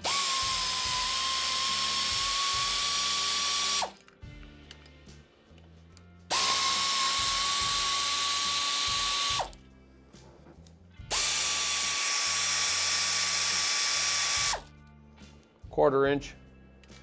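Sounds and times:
air ratchet whining: 0.0s - 4.1s, 6.3s - 9.6s, 11.1s - 14.7s.

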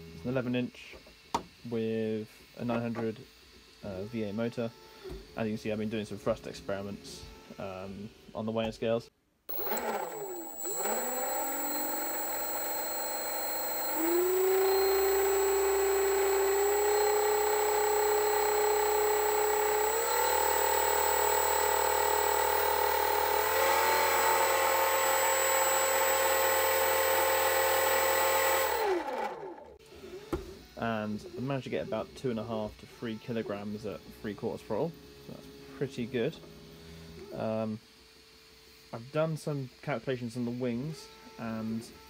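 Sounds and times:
electric motor propeller whine: 9.5s - 30.3s.

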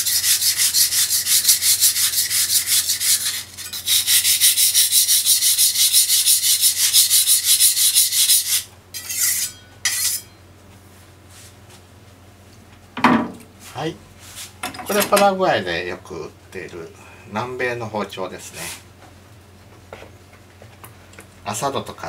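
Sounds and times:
knife scraping on whetstone: 0.0s - 10.4s.

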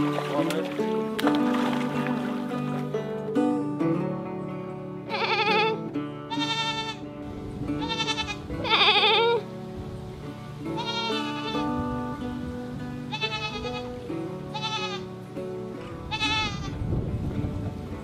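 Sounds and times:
background music with held notes: 0.0s - 18.0s
goat bleating: 5.0s - 7.1s, 7.8s - 9.4s, 10.7s - 11.8s, 13.1s - 15.2s, 16.1s - 16.8s.

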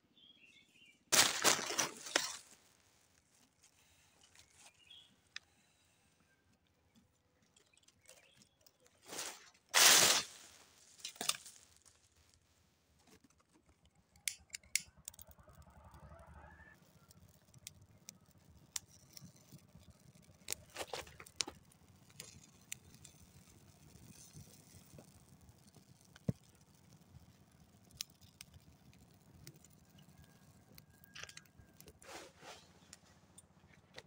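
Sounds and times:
dry leaves rustling and crunching: 1.1s - 2.6s, 9.0s - 12.3s.

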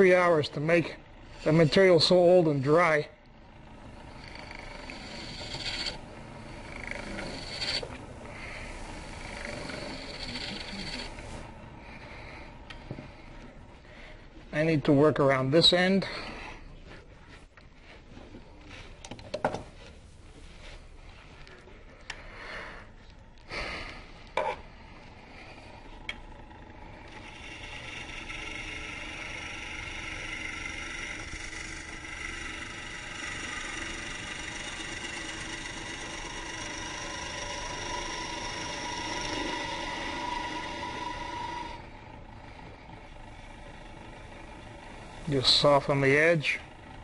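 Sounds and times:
gouge cutting wood on lathe: 0.0s - 13.4s, 25.2s - 47.0s
lathe running: 0.0s - 21.4s, 24.0s - 47.0s.

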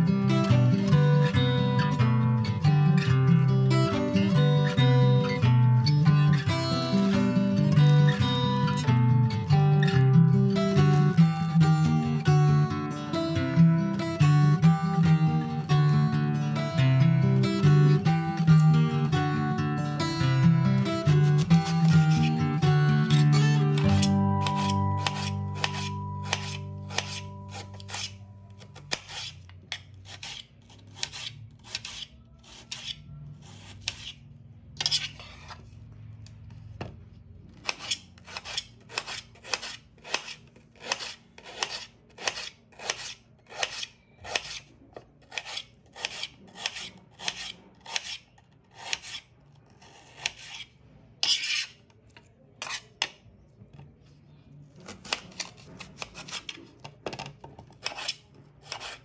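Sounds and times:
knife slicing onion on plate: 23.0s - 34.2s, 34.8s - 35.6s, 37.6s - 51.8s, 52.6s - 53.2s, 54.8s - 56.8s, 57.7s - 59.0s.

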